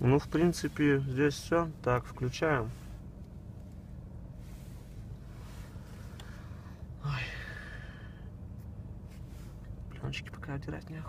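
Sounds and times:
faint rustling: 0.0 - 7.0, 8.4 - 9.9
car interior hum: 0.0 - 11.0.

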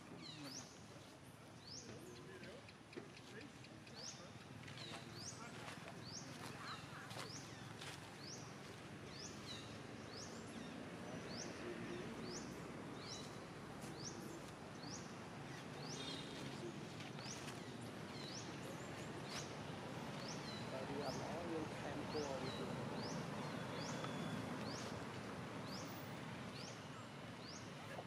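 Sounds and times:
outdoor background hiss: 0.0 - 28.0
bird chirping: 9.1 - 28.0.

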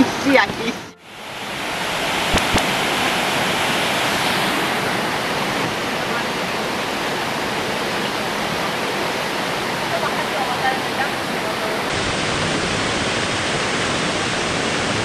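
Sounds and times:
waterfall rushing: 1.0 - 15.0
short clicks: 2.3 - 2.7.

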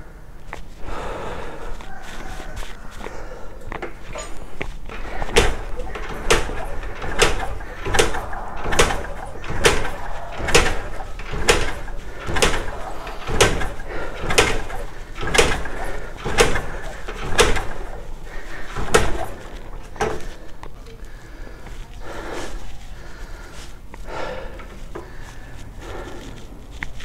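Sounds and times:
motorcycle kick-starter clunking: 3.6 - 20.5.

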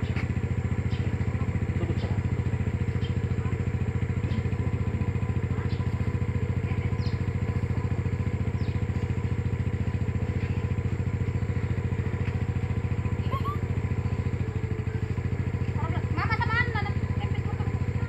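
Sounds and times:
small engine running: 0.0 - 18.0.

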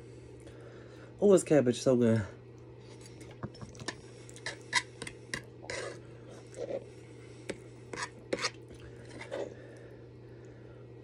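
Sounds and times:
low steady hum: 0.0 - 11.0
fork scraping a plate: 4.4 - 6.9, 7.5 - 9.6.

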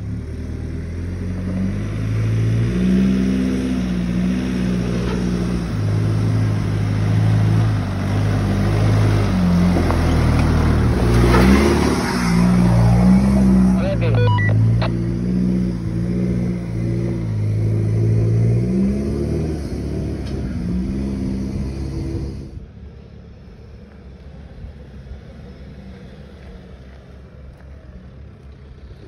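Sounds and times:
distant engine: 0.0 - 29.0
engine revving hard: 11.0 - 22.6.

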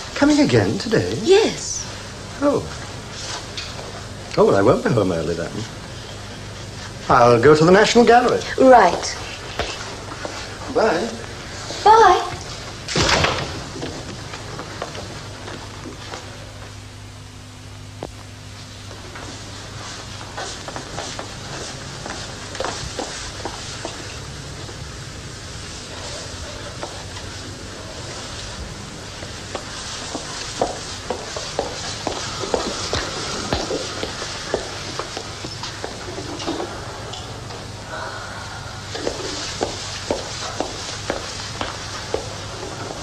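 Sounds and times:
television hiss and hum: 0.0 - 43.0.

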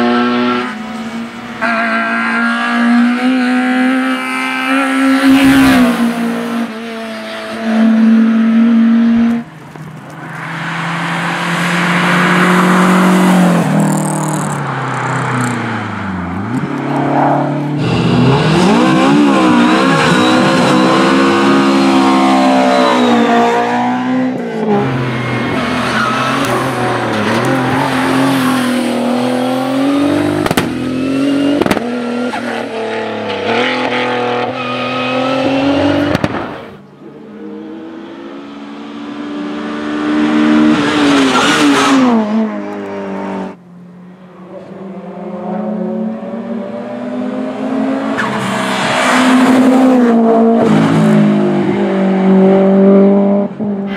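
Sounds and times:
race car engines revving: 0.0 - 53.9.

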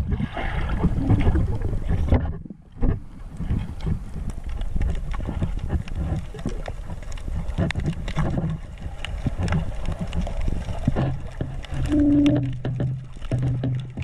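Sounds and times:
heavy low rumble: 0.0 - 3.1, 10.8 - 14.0
water splashing and sloshing: 0.0 - 14.0.

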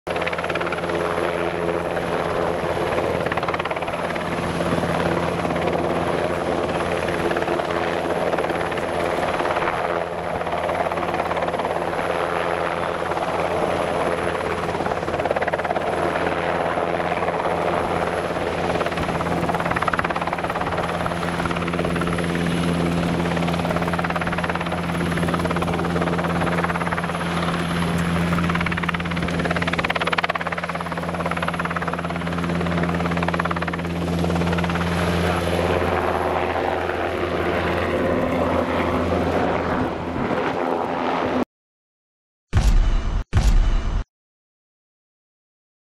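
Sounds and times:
helicopter hovering: 0.1 - 41.4.

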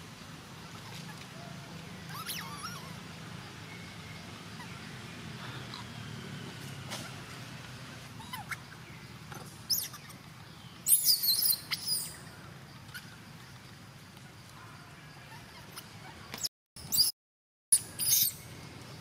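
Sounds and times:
baby monkey squealing: 2.1 - 3.0, 8.2 - 8.7, 9.7 - 10.2, 10.9 - 12.2, 17.8 - 18.4.

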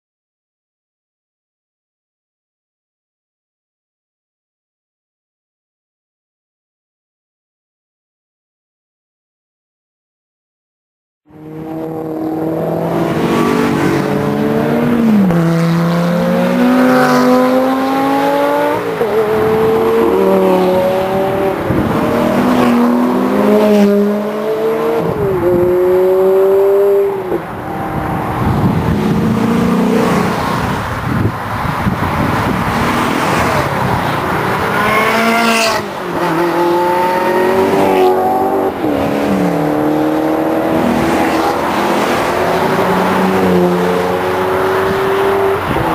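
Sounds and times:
sports cars accelerating hard: 11.3 - 45.9.

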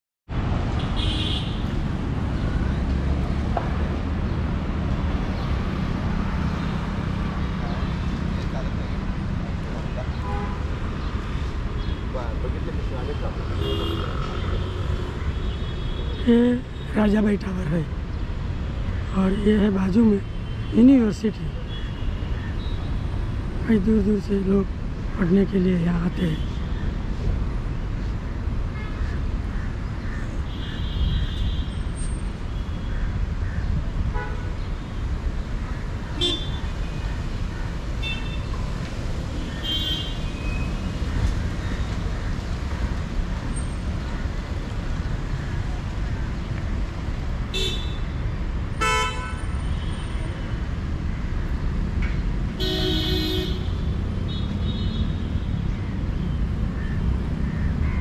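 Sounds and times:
rumble of passing vehicles: 0.3 - 58.0
car horns honking: 0.8 - 1.7, 48.8 - 50.0, 52.6 - 55.1.

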